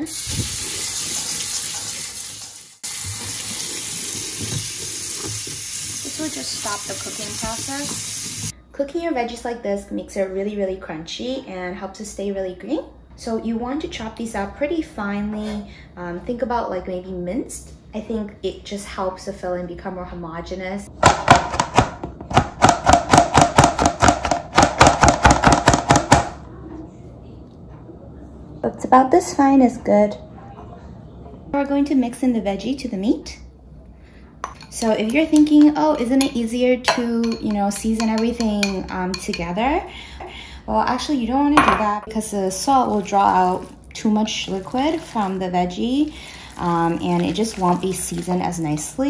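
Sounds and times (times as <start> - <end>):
tap water running into colander: 0.0 - 8.5, 42.4 - 48.9.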